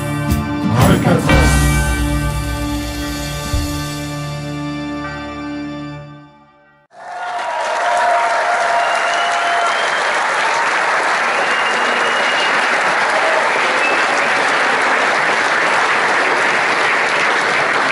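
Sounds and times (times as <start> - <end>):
crowd cheering: 6.9 - 17.9
crowd clapping: 6.9 - 17.9.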